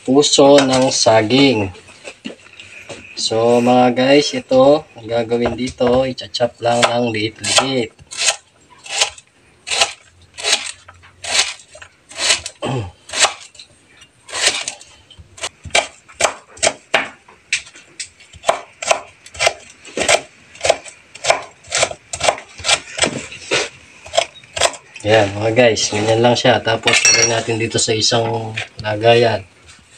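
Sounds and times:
knife chopping on wooden board: 18.4s - 23.2s.

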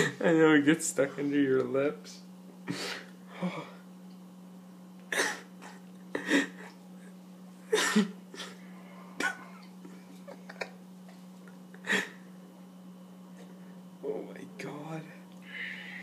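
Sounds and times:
man coughing and spluttering: 5.1s - 6.7s, 7.7s - 8.6s, 9.2s - 9.7s.

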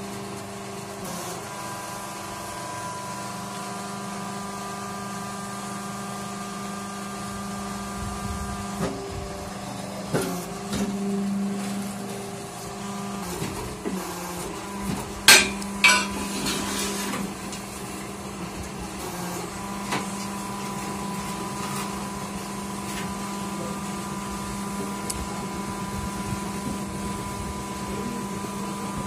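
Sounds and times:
machine humming: 1.0s - 29.0s
loud metallic clanks: 15.3s - 16.6s.

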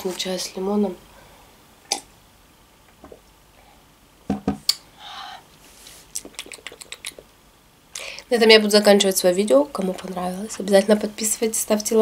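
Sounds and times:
person sipping and swallowing: 1.9s - 2.1s
mug knocking on table: 4.3s - 4.6s.

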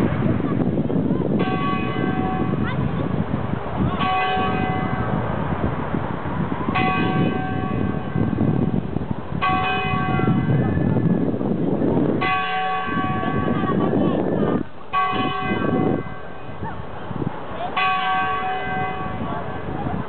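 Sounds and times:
church bell tolling: 1.4s - 2.7s, 4.0s - 5.1s, 6.7s - 8.4s, 9.4s - 10.6s, 14.9s - 16.4s, 17.7s - 19.7s.

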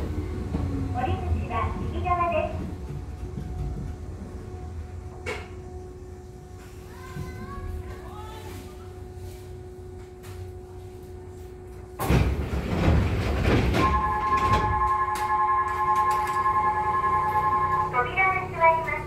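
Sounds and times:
standing train car hum: 0.0s - 19.0s
train doors sliding open: 11.9s - 18.0s.

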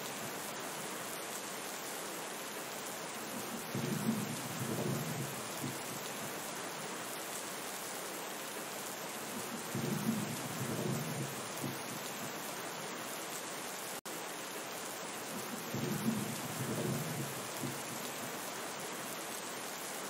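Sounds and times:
steady rain: 0.0s - 20.0s
rolling thunder: 3.7s - 5.8s, 15.7s - 17.8s.

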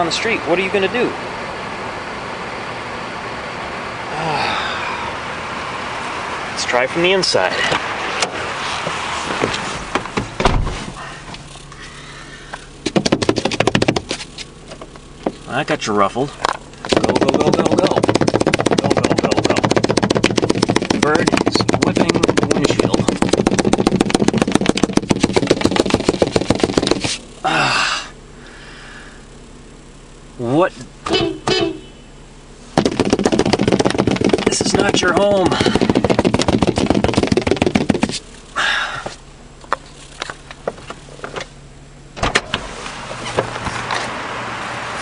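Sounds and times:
car engine idling: 0.0s - 45.0s
rustling of person climbing in: 7.6s - 12.0s
car door shutting: 7.7s - 11.5s, 42.2s - 44.2s
bird wings flapping on windshield: 12.8s - 14.5s, 16.8s - 27.2s, 32.8s - 38.3s.

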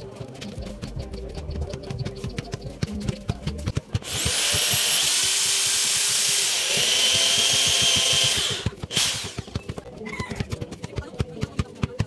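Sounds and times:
power drill drilling into wood: 4.0s - 9.5s.

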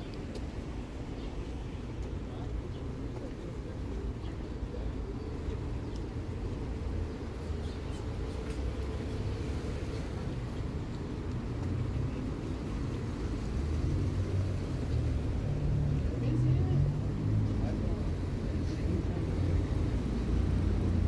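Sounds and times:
passing cars rumbling: 5.6s - 21.0s.

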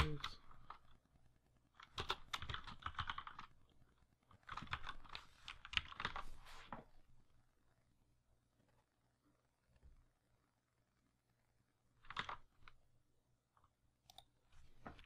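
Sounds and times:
computer keyboard typing: 0.0s - 6.3s, 12.0s - 12.8s.

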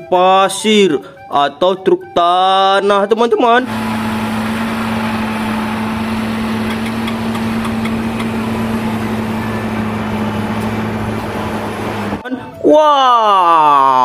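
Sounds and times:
engine idling: 3.6s - 12.2s.

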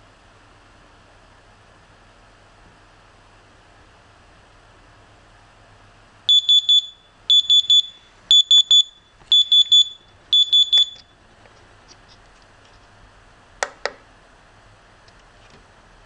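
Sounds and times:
high-pitched electronic buzzer beeps: 6.3s - 11.1s.

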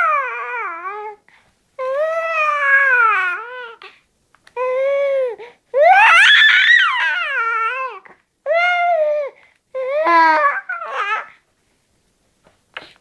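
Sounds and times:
baby crying: 0.0s - 1.2s, 1.8s - 3.9s, 4.6s - 11.4s.

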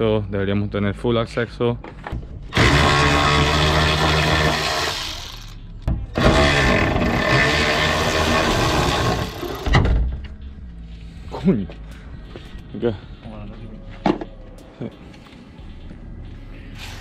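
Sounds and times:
cordless power tool running: 2.5s - 5.6s, 6.2s - 9.6s.

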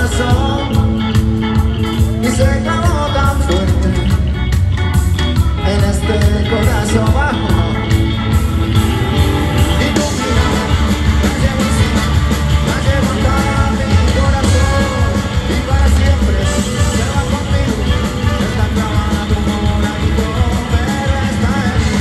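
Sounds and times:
person singing: 0.0s - 4.6s, 5.4s - 8.5s, 9.1s - 22.0s
bass: 0.0s - 22.0s
drum kit: 0.0s - 22.0s
electric guitar: 0.0s - 22.0s
percussion: 0.0s - 22.0s
horns: 7.7s - 22.0s.

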